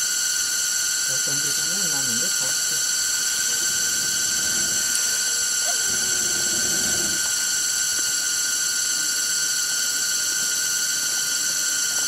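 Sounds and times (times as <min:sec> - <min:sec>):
forest insects droning: 0:00.0 - 0:12.0.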